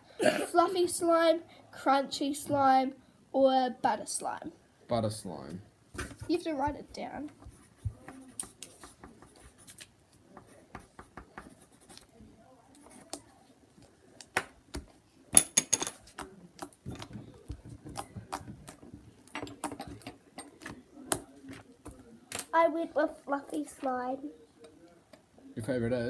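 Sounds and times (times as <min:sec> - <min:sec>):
pen scratching on paper: 0:10.4 - 0:12.1.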